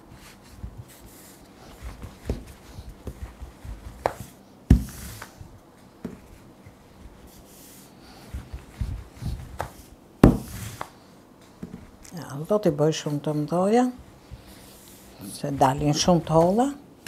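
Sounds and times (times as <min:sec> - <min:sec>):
rolling pin rolling over dough: 0:00.0 - 0:16.8
rolling pin knocks: 0:09.6 - 0:10.9.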